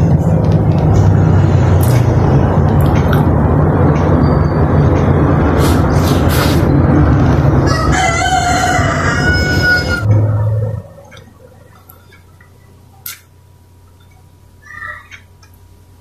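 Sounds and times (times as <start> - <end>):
loud steady rushing noise: 0.0 - 12.1
rooster crowing: 7.6 - 10.2.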